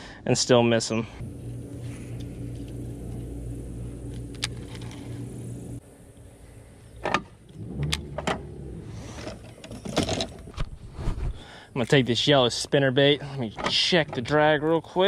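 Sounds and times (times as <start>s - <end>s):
fishing reel whirring: 1.5s - 5.8s.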